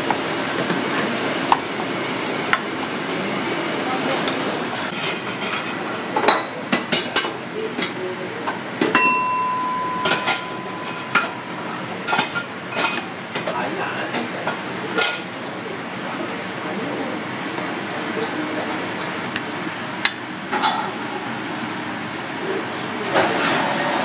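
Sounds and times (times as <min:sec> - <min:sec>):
ladle clinking against steel pots: 0:08.9 - 0:13.7.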